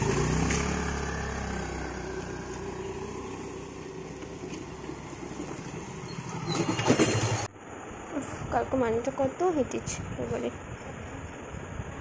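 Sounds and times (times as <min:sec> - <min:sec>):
motor scooter engine: 0:00.0 - 0:07.5
motorcycle engine: 0:00.0 - 0:07.5.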